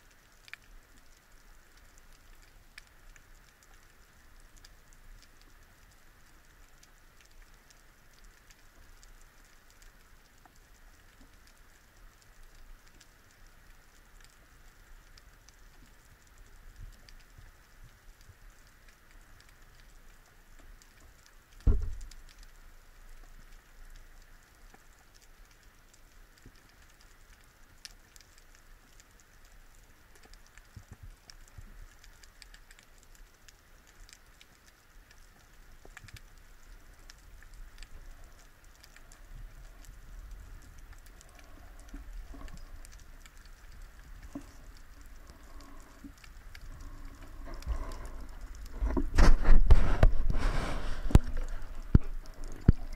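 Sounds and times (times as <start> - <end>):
underwater crackling and ticking: 0.0 - 52.9
loud low thump: 21.7 - 22.0.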